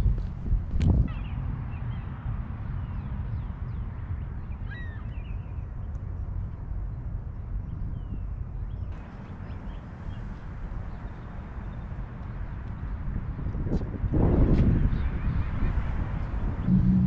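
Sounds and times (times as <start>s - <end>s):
faint bird calls: 4.6s - 5.3s
low rumble: 16.6s - 17.0s.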